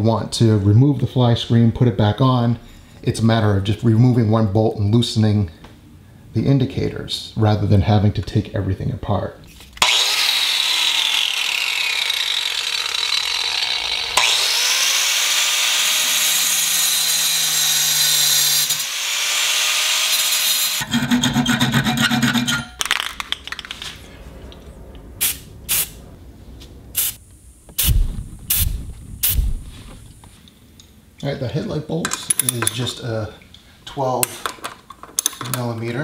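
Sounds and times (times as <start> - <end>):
cut-off wheel grinding steel: 9.8 - 22.8
spray paint can hissing: 25.2 - 26.0, 27.0 - 29.6.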